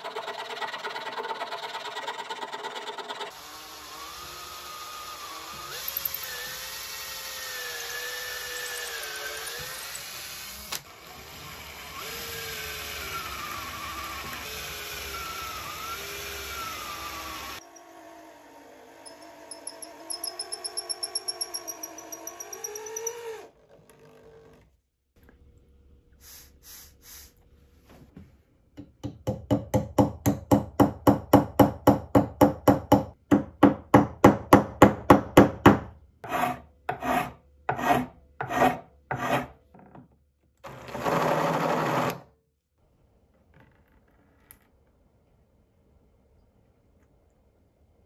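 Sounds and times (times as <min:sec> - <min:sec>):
cordless drill whining: 0:03.3 - 0:18.0
hand tool rasping wood: 0:36.2 - 0:39.6.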